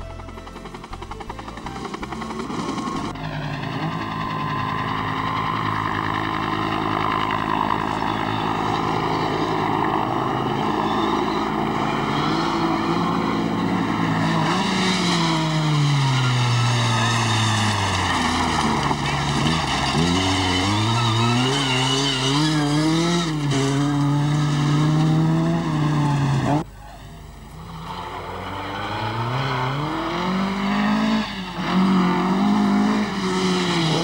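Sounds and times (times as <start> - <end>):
helicopter overhead: 0.0 - 18.0
rally car engines running hard: 0.0 - 34.0.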